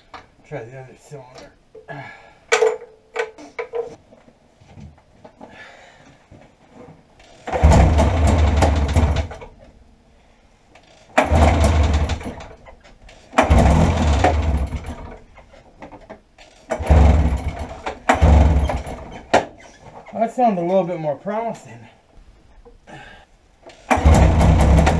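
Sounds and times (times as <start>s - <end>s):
recoil rope pull: 7.2s - 9.4s, 10.8s - 15.1s, 16.4s - 19.5s, 23.7s - 24.9s
engine sputtering: 7.4s - 9.4s, 11.2s - 12.5s, 13.3s - 15.2s, 16.7s - 19.3s, 23.9s - 24.9s.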